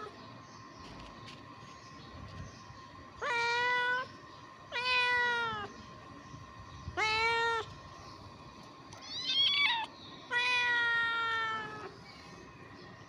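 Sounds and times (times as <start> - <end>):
kittens meowing: 3.2 - 4.1, 4.7 - 5.7, 6.9 - 7.8, 8.9 - 12.0.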